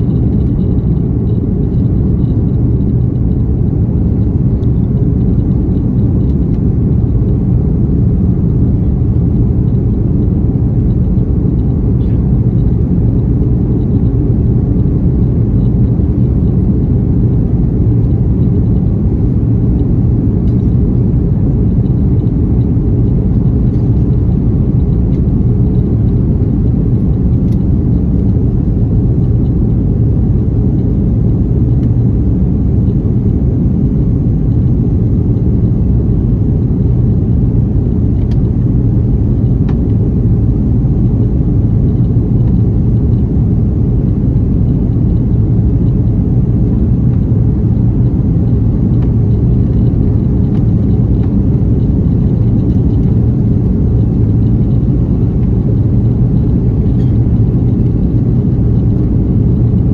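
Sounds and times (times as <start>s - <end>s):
airliner cabin engine rumble: 0.0s - 59.9s.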